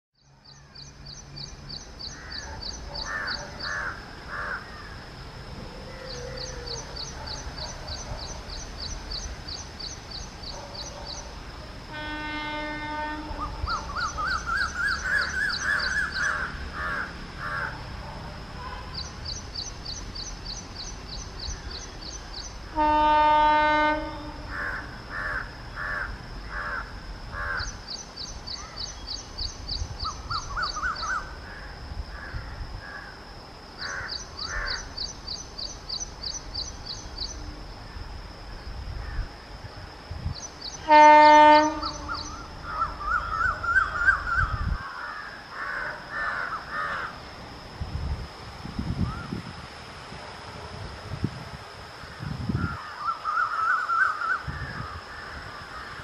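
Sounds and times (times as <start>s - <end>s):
crows cawing: 2.1s - 5.0s, 14.2s - 17.9s, 24.5s - 27.8s, 31.5s - 33.2s, 33.8s - 34.9s, 41.9s - 47.2s
locomotive horn blasts: 11.9s - 13.6s, 22.7s - 24.5s, 40.8s - 42.4s.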